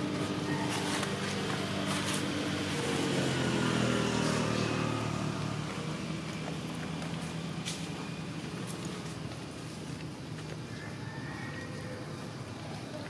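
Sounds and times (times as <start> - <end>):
vehicle engine passing: 0.0 - 9.7.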